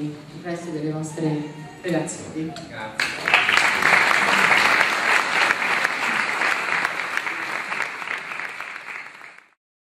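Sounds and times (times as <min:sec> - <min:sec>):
audience applauding: 0:03.0 - 0:09.6.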